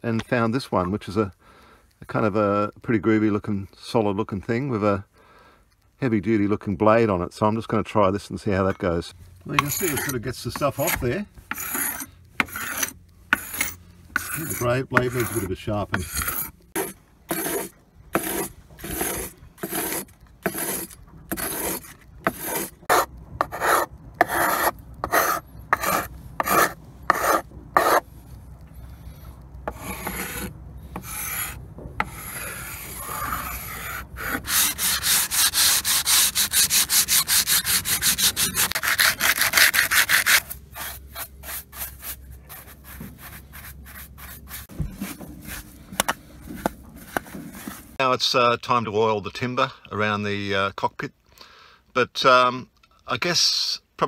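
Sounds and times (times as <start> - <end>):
hand scraper scraping varnish off wood: 9.5 - 28.0, 29.7 - 48.0.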